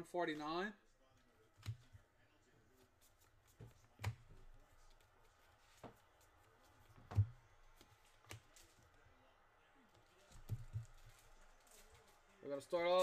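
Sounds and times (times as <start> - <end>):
cards clicking and tapping: 1.6 - 2.0, 3.4 - 8.8.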